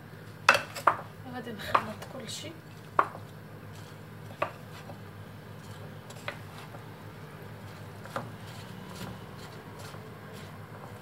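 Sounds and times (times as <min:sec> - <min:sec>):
hands mixing rice in a bowl: 0:02.7 - 0:11.0.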